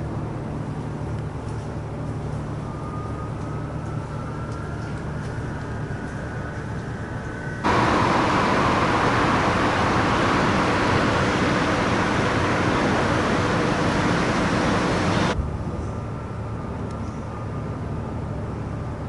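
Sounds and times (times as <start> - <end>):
faint steady hum: 0.0 - 19.0
loud wind rushing on deck: 7.6 - 15.4.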